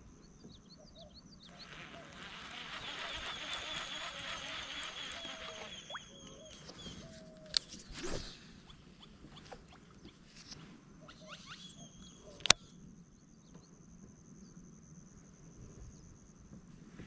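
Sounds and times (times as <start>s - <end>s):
high thin insect-like tone: 1.5s - 6.3s
chirping animal calls: 1.5s - 7.2s.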